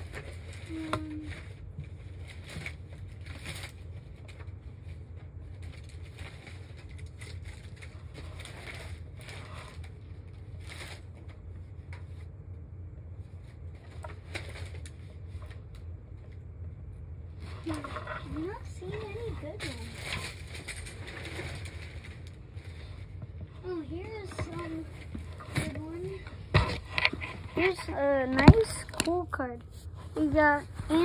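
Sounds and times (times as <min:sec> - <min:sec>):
low steady hum: 0:00.0 - 0:31.0
cards rustling and clicking: 0:17.6 - 0:30.6.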